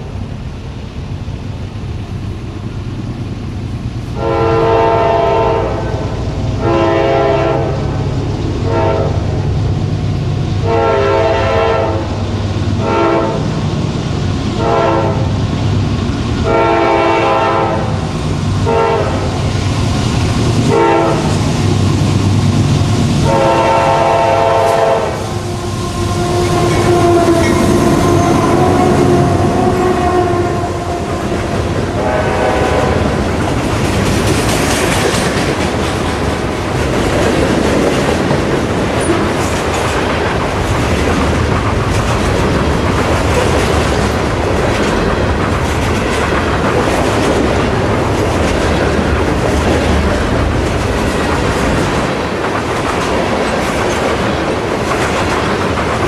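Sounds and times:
locomotive air horn blasts: 4.2 - 8.0, 8.6 - 9.2, 10.6 - 12.2, 12.8 - 13.5, 14.6 - 15.3, 16.4 - 17.9, 18.6 - 19.4, 20.7 - 21.3, 23.2 - 31.4, 32.0 - 33.1
freight cars clattering over rails: 24.4 - 56.0.

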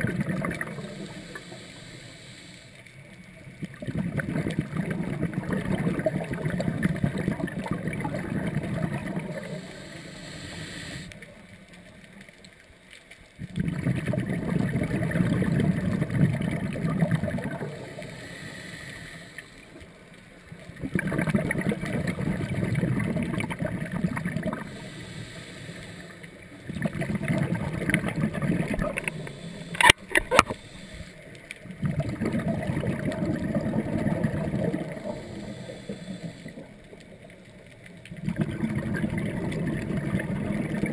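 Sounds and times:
exhaled breath bubbling underwater: 0.0 - 2.3, 3.7 - 11.1, 13.4 - 19.8, 20.7 - 36.8, 38.1 - 40.9
diver inhaling: 0.6 - 2.8, 9.3 - 11.2, 17.6 - 19.8, 24.5 - 26.4, 28.6 - 31.3, 34.7 - 36.8
sharp clicks: 28.8 - 31.6.

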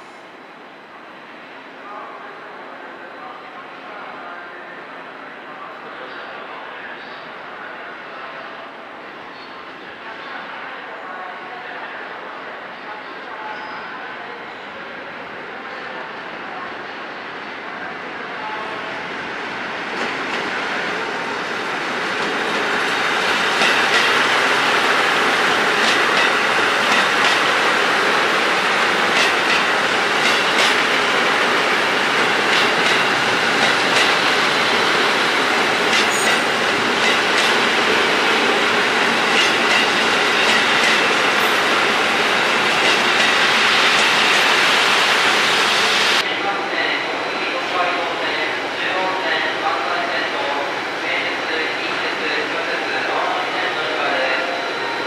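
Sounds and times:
diesel train passing: 18.4 - 55.0.

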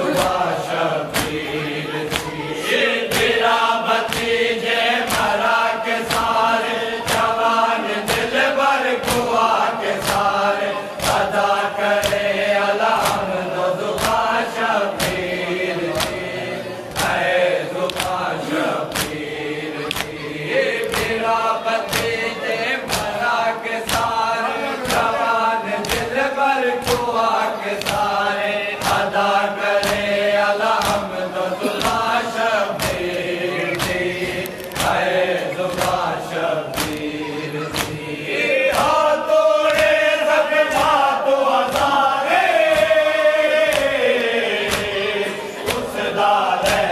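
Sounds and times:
men chanting together: 0.0 - 46.9
chest-beating slaps: 3.1 - 6.4, 18.9 - 21.3, 22.8 - 24.2, 27.7 - 29.1, 29.7 - 39.0, 41.6 - 45.0.

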